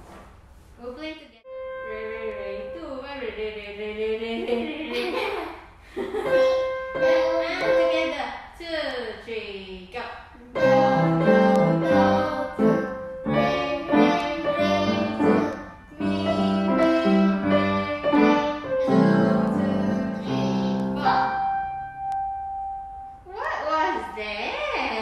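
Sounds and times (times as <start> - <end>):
upright piano duet: 1.4 - 5.2, 6.1 - 8.4, 10.4 - 24.2.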